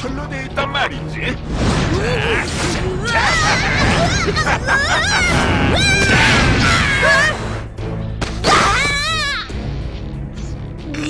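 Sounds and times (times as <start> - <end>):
dramatic music: 0.0 - 11.0
shouts and cries: 2.0 - 7.4, 8.4 - 9.5.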